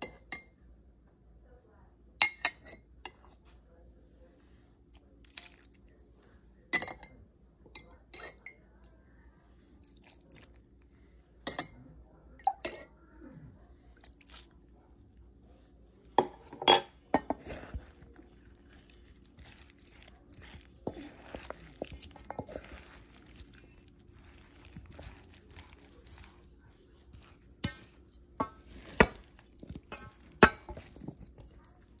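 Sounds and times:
spoon stirring in metal bowl: 16.2 - 32.0
spoon clinking against bowl: 27.1 - 31.6.

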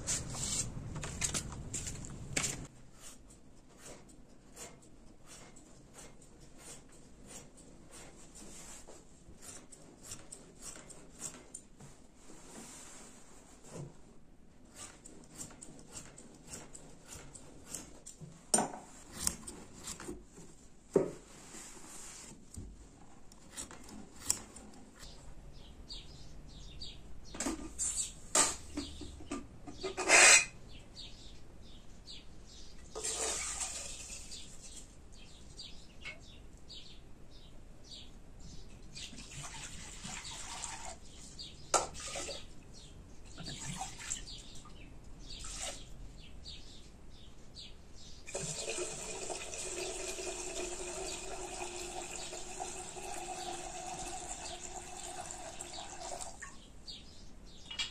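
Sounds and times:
pots and utensils clinking: 29.3 - 30.6
water poured into a cup: 48.3 - 56.5.

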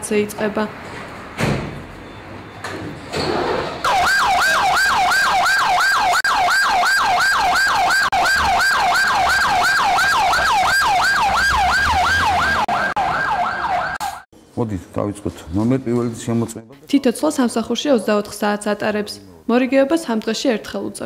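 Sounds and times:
fire engine siren yelping: 3.8 - 14.3.

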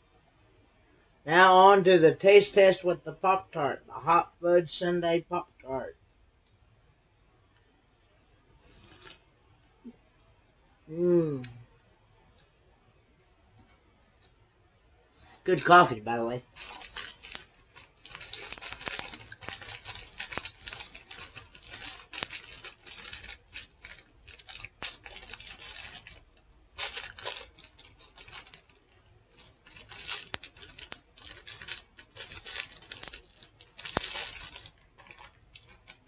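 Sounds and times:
foil wrapper tearing and crinkling: 16.5 - 36.0.

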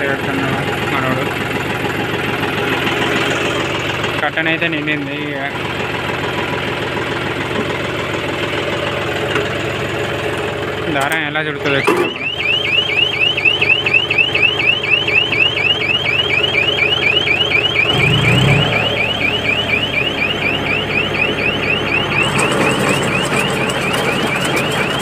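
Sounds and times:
tractor engine running: 0.0 - 25.0
electronic warbling alarm chirp: 11.6 - 25.0.

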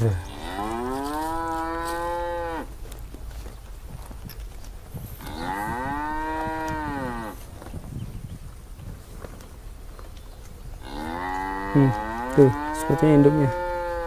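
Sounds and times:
cow mooing: 0.0 - 2.7, 5.2 - 7.4, 10.8 - 14.0.

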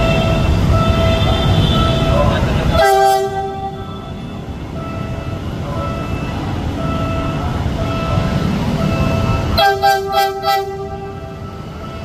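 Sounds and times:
locomotive horn: 0.0 - 4.3, 8.9 - 12.0
locomotive engine rumble: 0.0 - 12.0.

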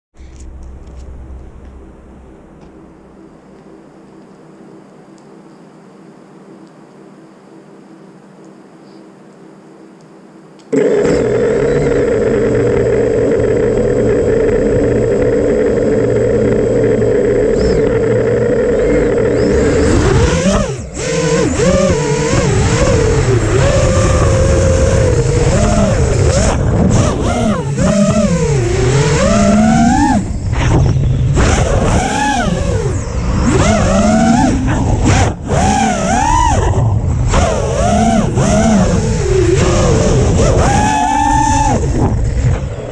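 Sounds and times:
drone motors whirring: 10.6 - 42.9.

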